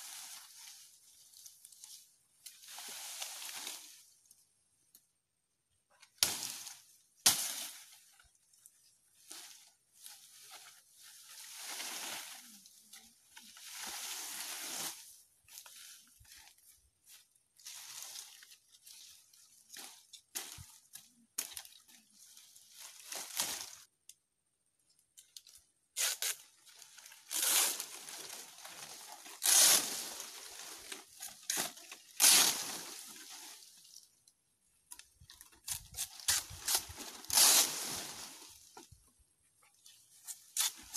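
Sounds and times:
dry leaflets rustling: 0:07.6 - 0:23.9, 0:26.4 - 0:34.1
palm frond tearing: 0:26.0 - 0:33.2, 0:35.6 - 0:38.2, 0:40.2 - 0:40.9.

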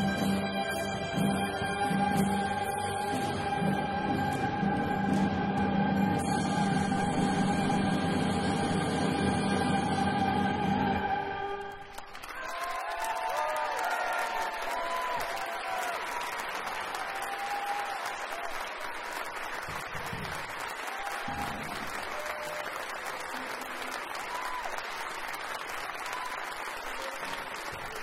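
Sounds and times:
crowd applauding: 0:11.4 - 0:28.0.

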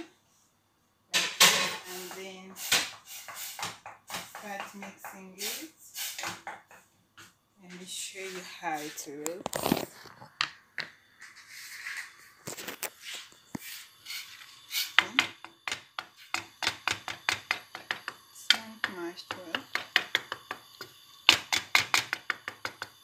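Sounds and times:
wooden spatula scraping metal pot: 0:07.7 - 0:10.3, 0:11.2 - 0:20.5.

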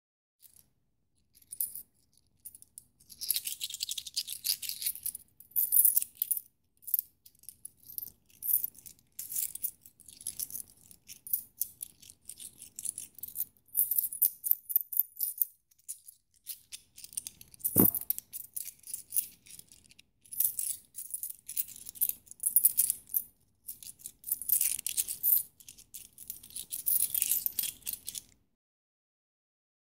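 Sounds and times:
coins jingling and clinking: 0:01.3 - 0:28.3.

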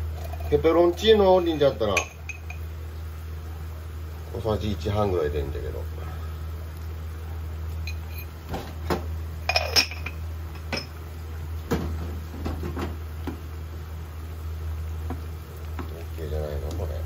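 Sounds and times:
steady low hum: 0:00.0 - 0:17.0
spoon clinking on ceramic pot: 0:01.9 - 0:02.6.

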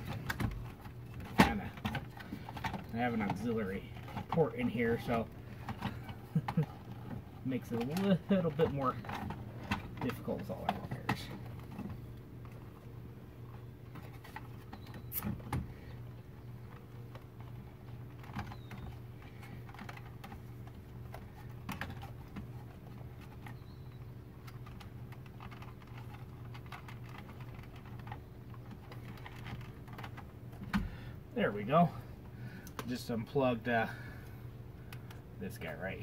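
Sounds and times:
steady low hum: 0:00.0 - 0:36.0
plastic clicks and rattles: 0:13.9 - 0:30.8.

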